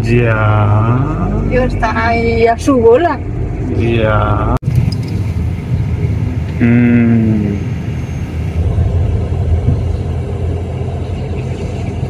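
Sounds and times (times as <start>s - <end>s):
diesel car engine rumble: 0.0s - 12.0s
person humming: 6.6s - 7.6s.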